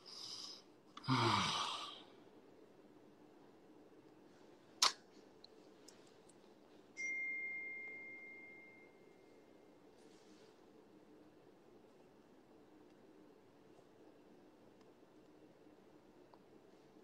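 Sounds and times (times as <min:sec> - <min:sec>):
sharp click: 0:04.8 - 0:05.0
high ding: 0:07.0 - 0:09.3.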